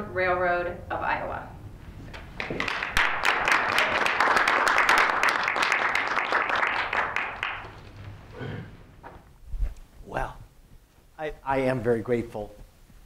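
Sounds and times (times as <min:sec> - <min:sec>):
audience applauding: 0:02.4 - 0:08.3.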